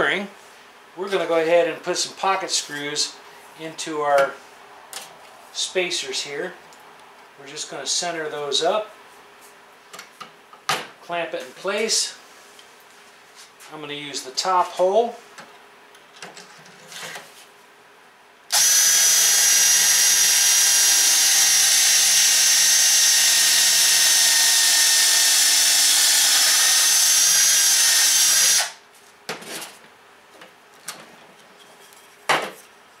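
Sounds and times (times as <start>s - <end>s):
cordless drill boring wood: 18.5s - 28.8s.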